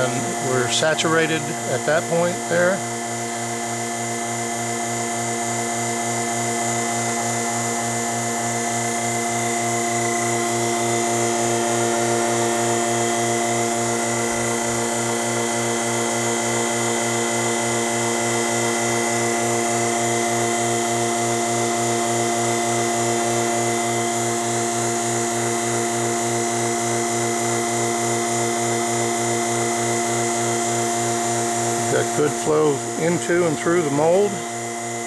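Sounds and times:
vacuum pump humming: 0.0 - 35.0.

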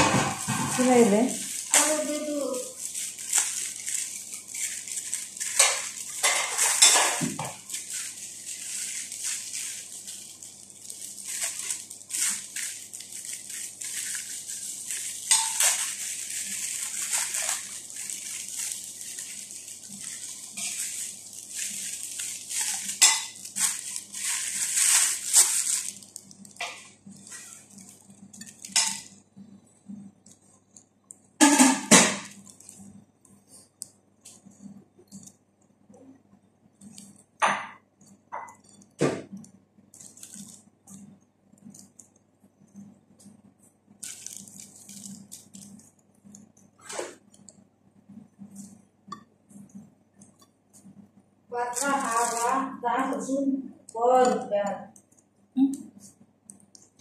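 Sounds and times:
plastic film crinkling: 0.0 - 29.2, 31.4 - 33.0, 38.6 - 42.2, 44.0 - 47.5, 51.5 - 55.1.

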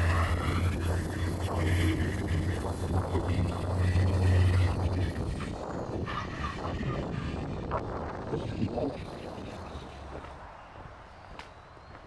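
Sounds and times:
vehicle passing by: 0.0 - 8.6
highway traffic rumble: 0.0 - 12.0.

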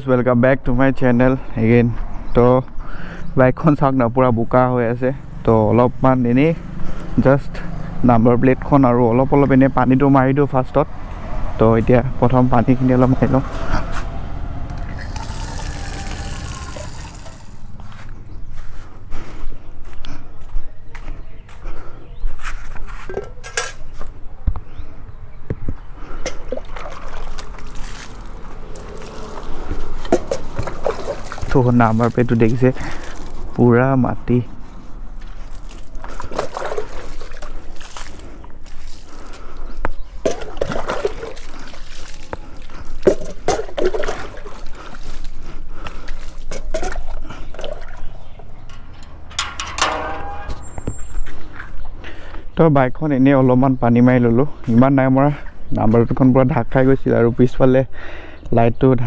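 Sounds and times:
water splashing over motorcycle: 26.6 - 33.3, 35.6 - 39.0, 40.3 - 45.3
metal gate squeaking: 48.4 - 51.4.

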